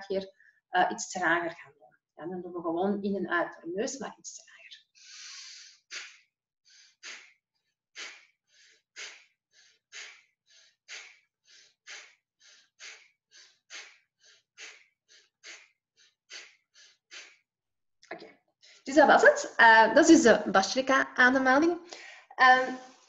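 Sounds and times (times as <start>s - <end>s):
woman forceful nasal breathing: 5.0s - 7.4s, 8.0s - 17.4s.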